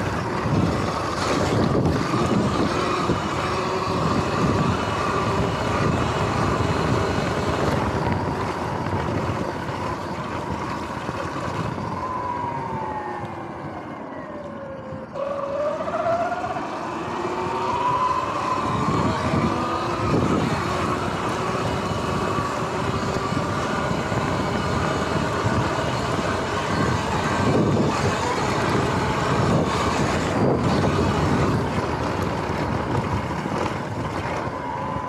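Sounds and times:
electric motor whining: 0.0 - 35.0
wind and tyre noise: 0.0 - 35.0.

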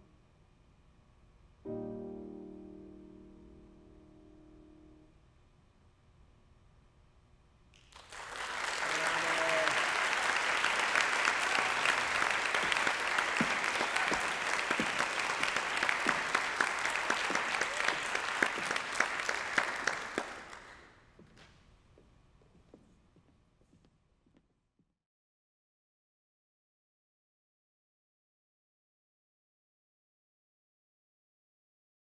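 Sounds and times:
audience applauding: 7.8 - 20.9.

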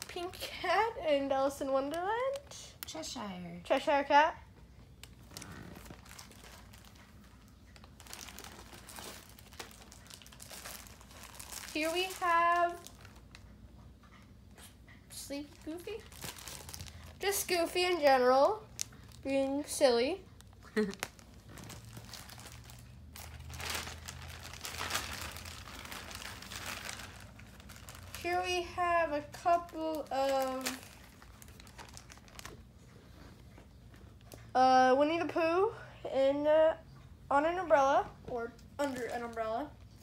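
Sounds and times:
plastic bags rustling: 5.0 - 13.4, 15.3 - 32.9, 38.8 - 39.9.

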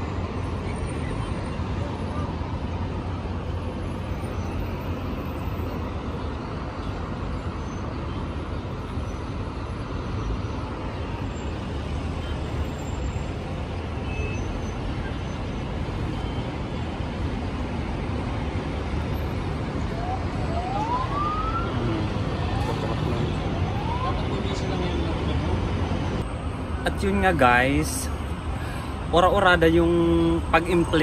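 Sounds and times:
heavy road traffic rumble: 0.0 - 31.0.

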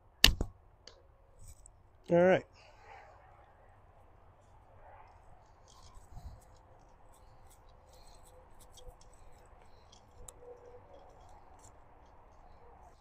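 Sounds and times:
light clicks and rustling: 4.4 - 13.0.

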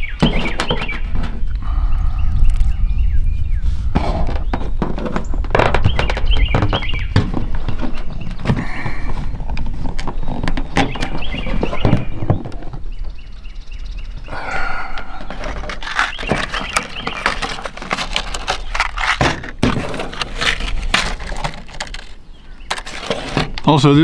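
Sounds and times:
hands handling wires and plastic: 3.9 - 12.9, 14.7 - 23.9.

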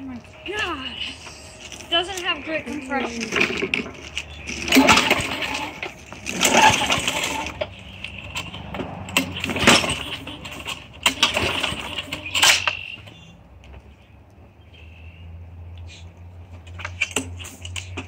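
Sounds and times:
lawn mower pull-starter whirring: 0.0 - 12.9.

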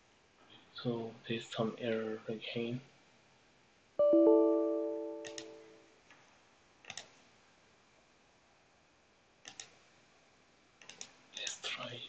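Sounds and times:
bell-like error chime: 4.0 - 5.7
sharp mouse clicks: 6.8 - 7.2, 9.4 - 9.8, 10.8 - 11.6.

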